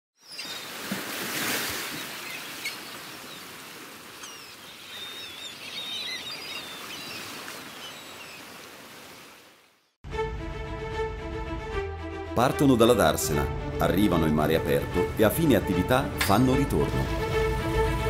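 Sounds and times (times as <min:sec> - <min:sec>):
birds chirping: 0:00.2 - 0:00.8, 0:01.7 - 0:10.0
water splashing and hissing: 0:00.4 - 0:09.7.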